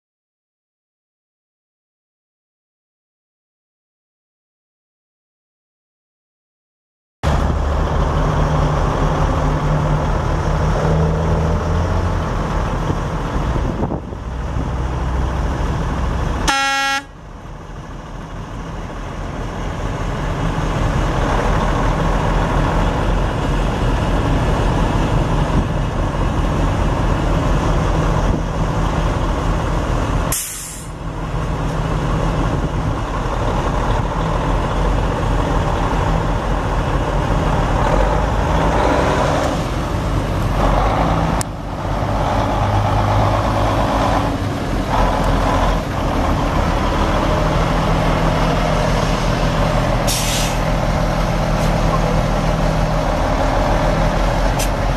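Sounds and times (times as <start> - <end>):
diesel truck engine running: 7.2 - 54.9
truck horn toot: 16.4 - 17.2
air hiss: 30.3 - 31.0, 50.1 - 50.7.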